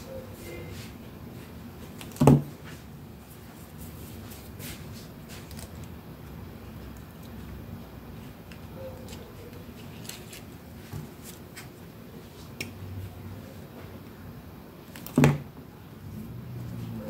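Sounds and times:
paper rustling and clicks: 0:04.3 - 0:06.0, 0:08.5 - 0:11.7.

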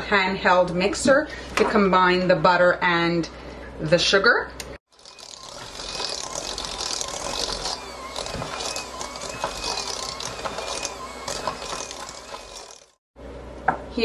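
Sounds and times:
electric mixer motor whine: 0:04.9 - 0:13.0.

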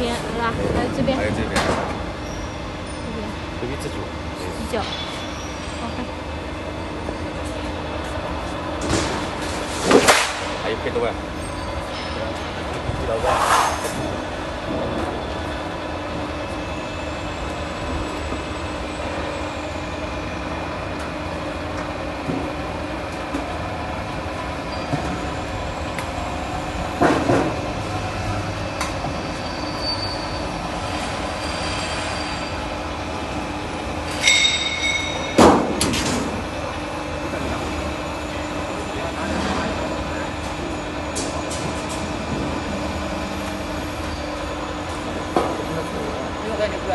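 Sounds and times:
lock forming machine humming: 0:14.0 - 0:46.9
high metallic squeal: 0:28.8 - 0:32.7, 0:34.1 - 0:35.4.

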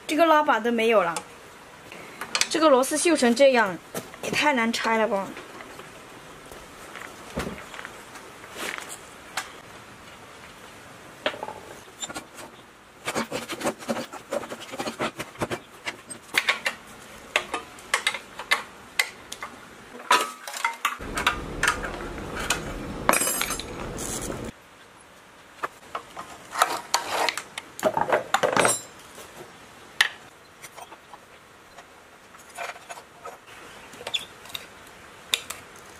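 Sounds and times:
hand tools and metal parts clinking: 0:19.4 - 0:24.5, 0:28.3 - 0:29.1
steady rough noise: 0:21.0 - 0:24.5.

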